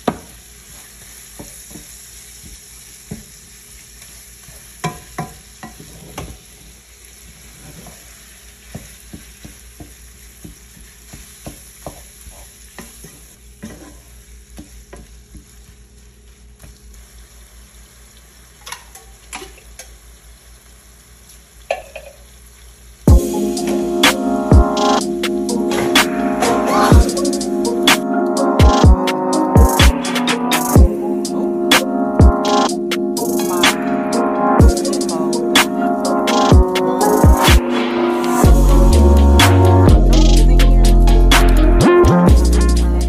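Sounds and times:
meat sizzling in a frying pan: 0.0s - 23.1s
wooden spoon knocking on pan: 8.7s - 12.1s.

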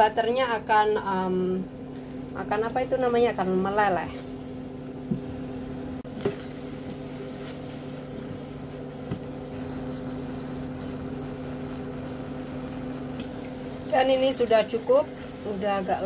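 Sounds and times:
kitchen appliance hum: 0.0s - 16.0s.

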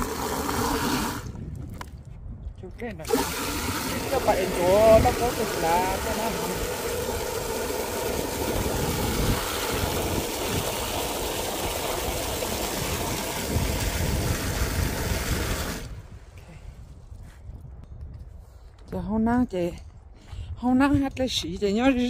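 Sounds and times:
tap water running into bucket: 0.0s - 1.4s, 3.0s - 16.0s.

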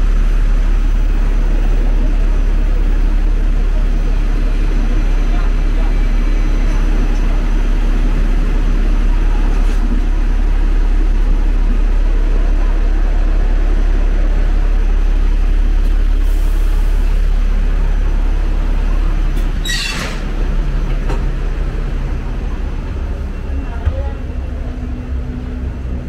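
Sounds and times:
low rumble of street traffic: 0.0s - 26.0s
short high squeal: 19.6s - 20.2s.

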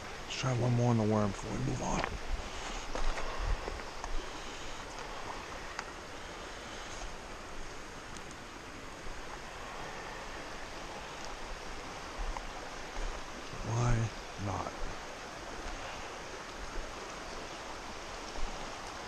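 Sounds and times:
river flowing over rocks: 0.0s - 19.0s
faint clicks: 2.8s - 6.0s, 6.9s - 8.4s.

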